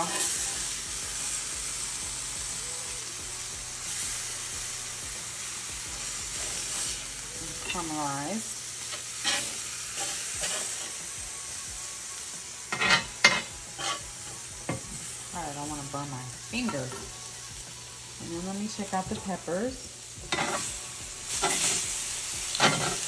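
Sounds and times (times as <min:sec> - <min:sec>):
vegetables sizzling on a griddle: 0:00.0 - 0:23.0
metal spatula scraping and tapping: 0:08.9 - 0:11.0, 0:12.7 - 0:14.0, 0:20.2 - 0:20.7, 0:21.4 - 0:21.8, 0:22.5 - 0:23.0.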